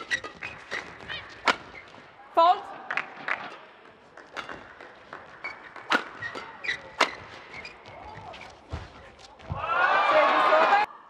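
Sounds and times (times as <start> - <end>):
rackets striking shuttlecock: 0.0 - 2.0, 4.2 - 7.7
court shoes squeaking: 0.0 - 2.2, 3.3 - 9.6.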